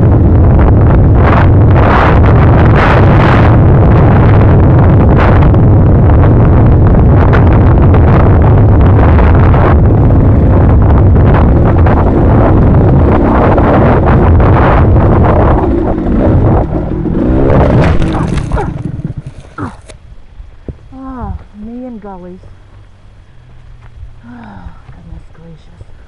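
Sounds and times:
wind buffeting microphone: 0.0 - 26.0
jolts over rocky trail: 17.0 - 20.0.

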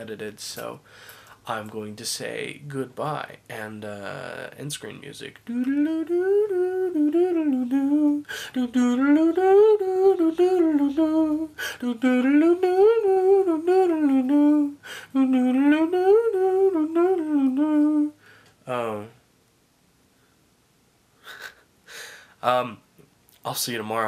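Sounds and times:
quick breath: 0.8 - 1.4, 21.2 - 22.4
man humming a melody: 5.4 - 19.2.

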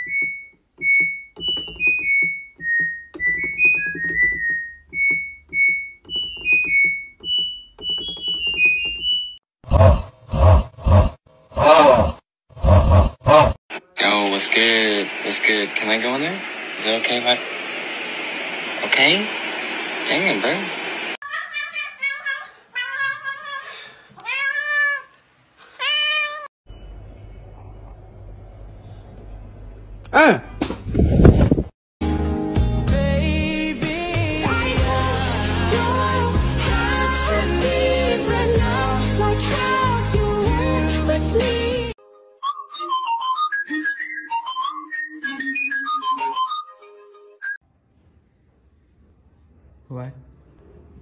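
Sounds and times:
cat meowing: 24.2 - 25.1, 25.8 - 26.5.

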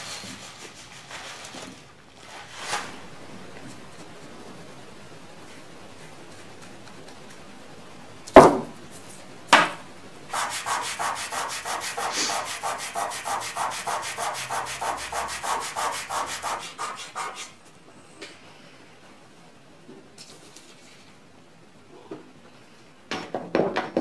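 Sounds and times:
sharp knocks: 8.4 - 8.8
fingertip rubbing powder into paper: 10.3 - 17.6.

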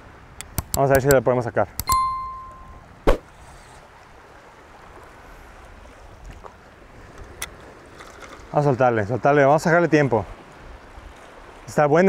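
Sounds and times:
light wind: 0.0 - 12.0
short bell-like chime: 1.9 - 2.9.

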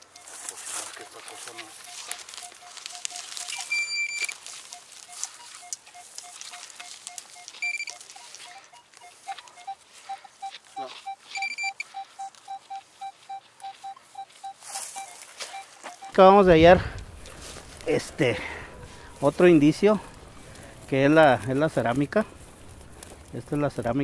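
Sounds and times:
short low beeps: 1.0 - 17.4
brief higher beeps: 1.6 - 16.3.

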